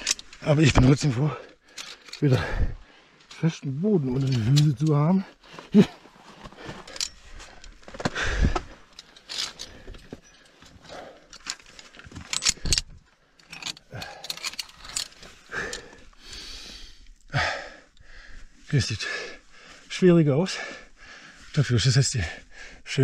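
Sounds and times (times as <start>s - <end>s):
carabiners clinking on steel cable: 0.0s - 5.8s, 6.6s - 16.2s.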